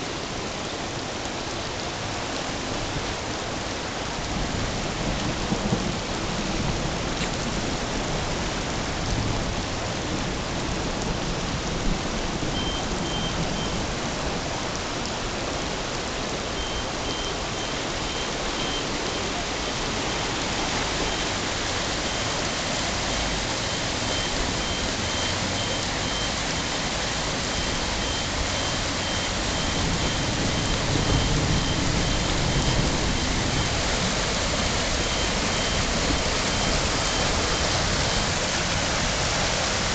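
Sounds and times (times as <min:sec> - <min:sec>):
heavy rain pouring: 0:00.0 - 0:39.9
high electronic beep: 0:16.6 - 0:19.3, 0:27.5 - 0:32.8.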